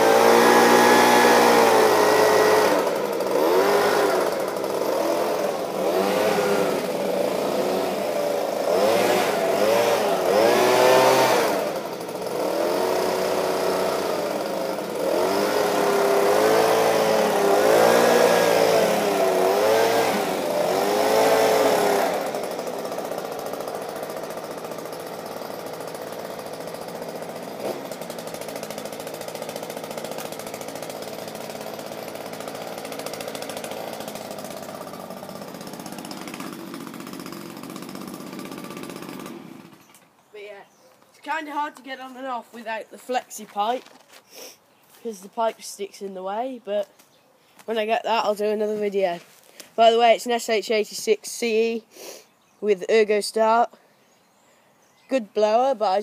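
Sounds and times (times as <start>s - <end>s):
leaf blower engine revving: 0.0s - 40.1s.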